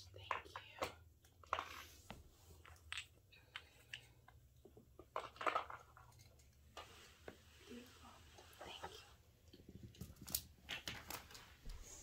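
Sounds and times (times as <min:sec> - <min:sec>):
pieces clattering: 0:04.8 - 0:06.6
small pieces clicking and rustling: 0:05.0 - 0:06.6, 0:09.8 - 0:11.5.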